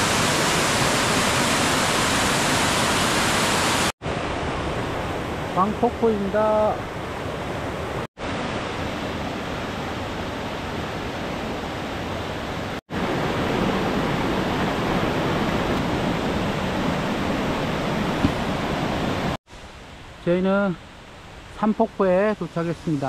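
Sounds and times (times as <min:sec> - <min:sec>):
waterfall rushing into pool: 0:00.0 - 0:06.8, 0:12.9 - 0:19.6.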